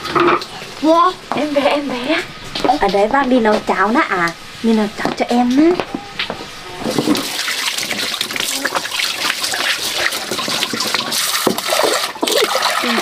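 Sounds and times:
water running from a pipe: 6.8 - 13.0
water splashing into metal pot: 6.8 - 13.0.

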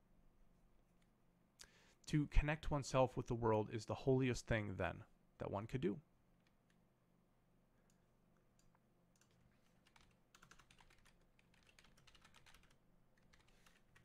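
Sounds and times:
low electrical hum: 0.0 - 14.0
typing on keyboard: 8.6 - 14.0.

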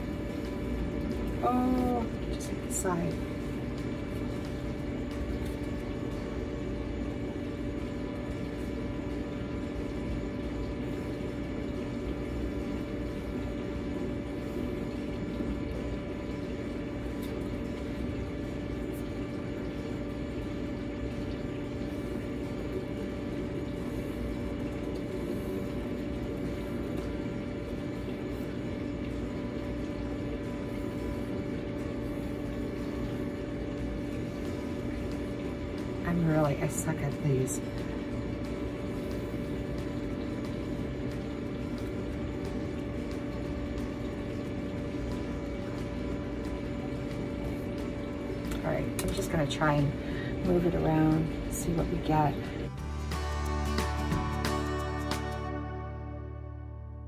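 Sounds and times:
mechanical hum: 0.0 - 57.0.

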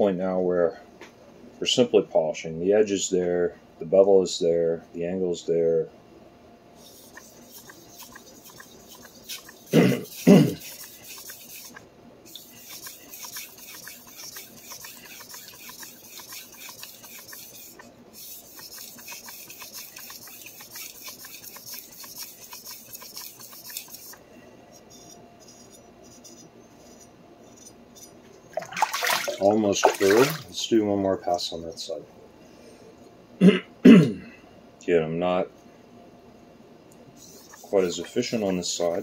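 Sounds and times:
knife rasping on whetstone: 6.8 - 24.2, 24.8 - 28.1, 37.2 - 39.0.

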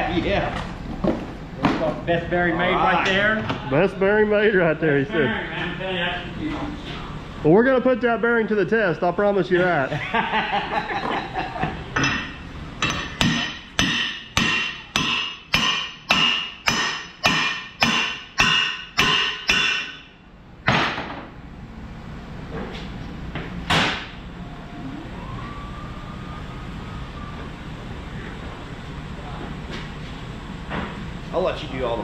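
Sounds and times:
hammer striking steel shaft: 12.0 - 20.2.

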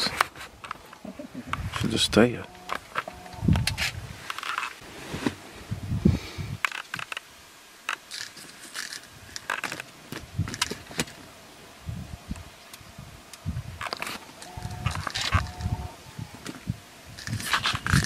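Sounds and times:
rustling: 0.0 - 5.8, 6.6 - 11.4, 12.6 - 18.0
handling clicks and rattles: 7.9 - 11.2.

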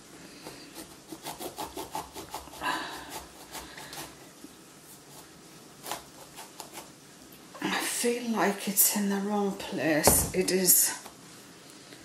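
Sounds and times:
knife sawing into marrow: 0.4 - 4.2.

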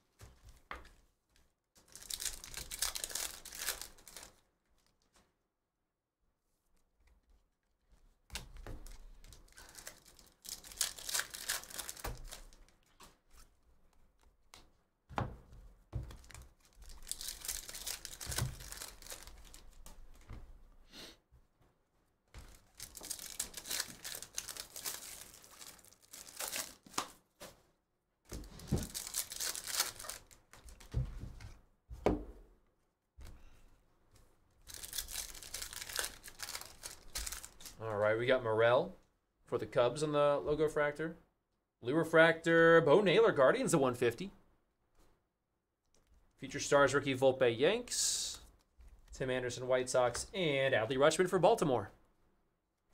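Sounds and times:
foil wrappers tearing and crinkling: 1.9 - 4.4, 8.8 - 12.7, 16.2 - 20.0, 22.4 - 27.1, 28.4 - 30.9, 34.7 - 37.8.

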